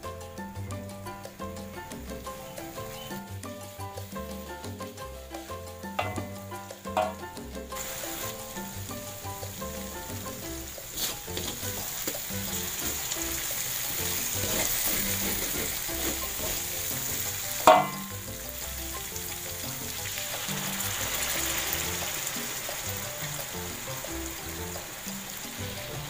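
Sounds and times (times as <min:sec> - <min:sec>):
paste sizzling in a wok: 0:00.5 - 0:26.0
spatula clanging on wok: 0:05.9 - 0:09.2, 0:09.8 - 0:19.3.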